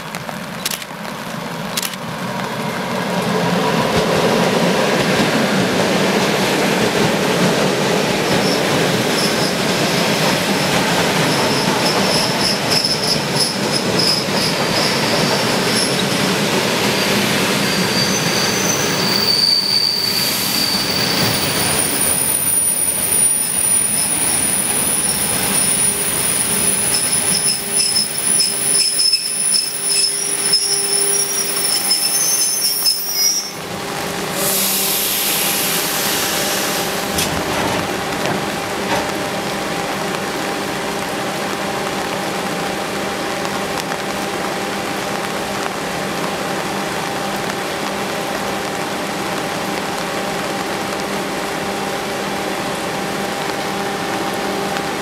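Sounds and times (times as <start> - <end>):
train rumbling past: 0.0 - 55.0
high wheel squeals: 11.2 - 16.2, 16.8 - 33.6.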